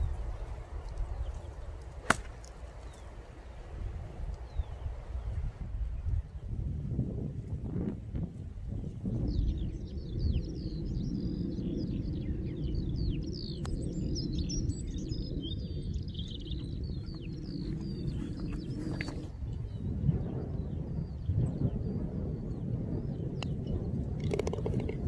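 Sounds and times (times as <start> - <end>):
wind buffeting microphone: 0.0 - 25.0
bird singing chirps: 9.2 - 23.9.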